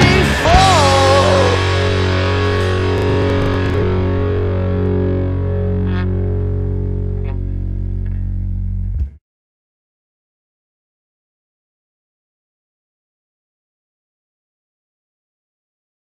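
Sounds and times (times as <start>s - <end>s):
distorted electric guitar chord: 0.0s - 9.2s.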